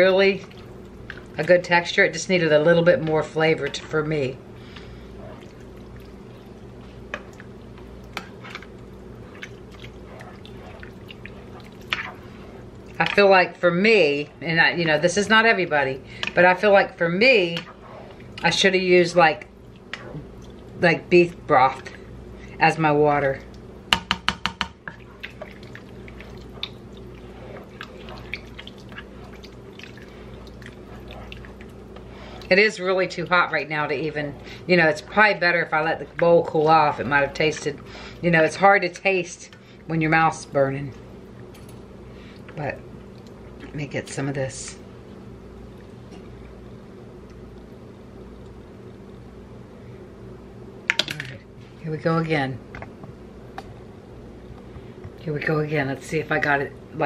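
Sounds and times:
steady low hum: 0:00.0 - 0:57.0
spatula stirring thick soup: 0:02.3 - 0:18.7, 0:24.8 - 0:37.9.

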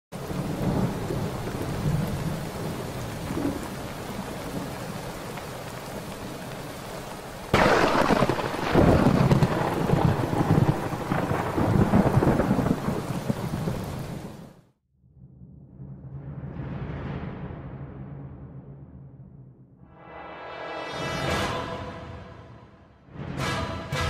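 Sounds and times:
rolling thunder: 0:00.2 - 0:05.1, 0:07.5 - 0:14.5
steady rain: 0:00.2 - 0:14.6
loud thunderclap: 0:07.5 - 0:14.4.

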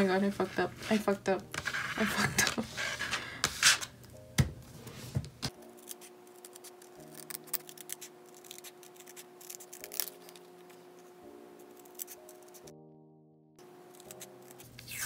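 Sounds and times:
soft background music: 0:00.0 - 0:15.0
scissors cutting paper: 0:05.5 - 0:12.7, 0:13.9 - 0:15.0.

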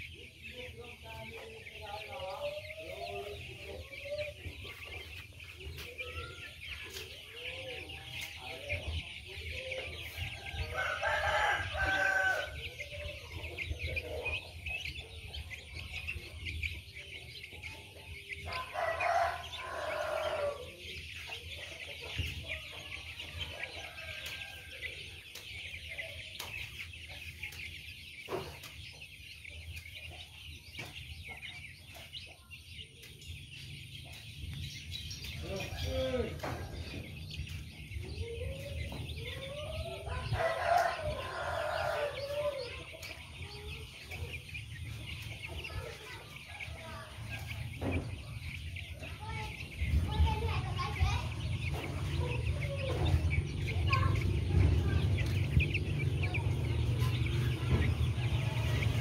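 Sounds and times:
chickens clucking: 0:00.0 - 0:59.0
rooster crowing: 0:10.4 - 0:12.6, 0:18.5 - 0:20.6, 0:40.0 - 0:42.6.

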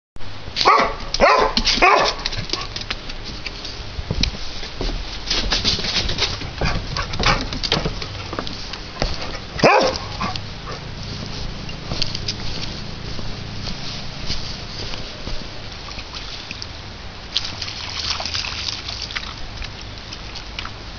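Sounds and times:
small dog barking: 0:00.6 - 0:02.2, 0:09.6 - 0:10.8
footsteps: 0:00.6 - 0:16.8
rustling: 0:01.2 - 0:16.8.

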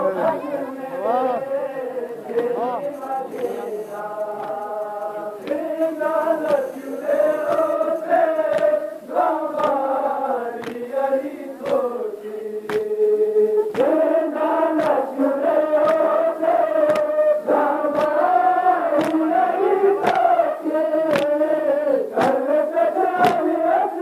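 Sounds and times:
men chanting in unison: 0:00.0 - 0:24.0
chest-beating slaps: 0:02.3 - 0:02.6, 0:03.3 - 0:08.8, 0:09.6 - 0:09.9, 0:10.6 - 0:10.9, 0:12.7 - 0:13.0, 0:13.7 - 0:14.0, 0:14.7 - 0:15.0, 0:16.9 - 0:17.1, 0:17.9 - 0:18.2, 0:19.0 - 0:19.2, 0:20.0 - 0:20.3, 0:21.1 - 0:21.4, 0:22.2 - 0:22.4, 0:23.2 - 0:23.4.

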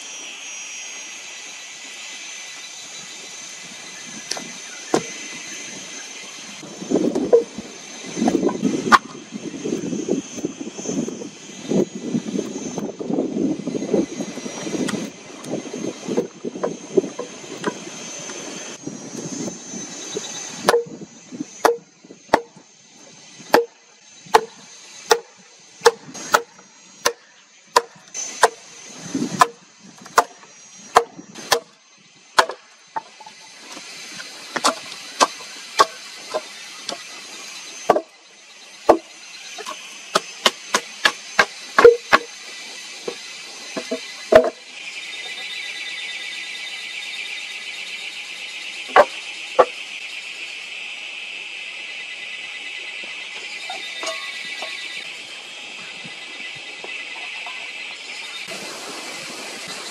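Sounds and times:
rough rhythmic rasping: 0:19.6 - 0:45.6
axe chopping wood: 0:20.6 - 0:20.9, 0:21.6 - 0:22.6, 0:23.5 - 0:23.7, 0:24.3 - 0:24.5, 0:25.1 - 0:28.6, 0:29.4 - 0:31.7, 0:32.4 - 0:32.6, 0:34.5 - 0:36.5, 0:37.9 - 0:38.1, 0:39.6 - 0:42.3, 0:48.9 - 0:49.7.

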